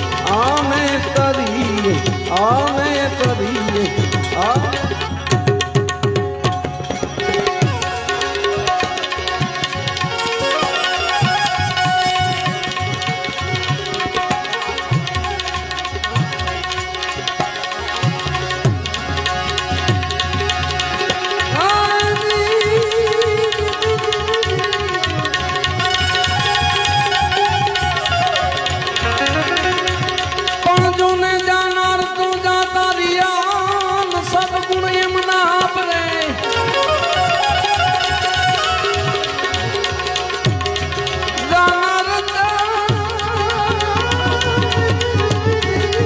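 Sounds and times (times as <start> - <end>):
tabla rhythm: 0.0 - 46.0.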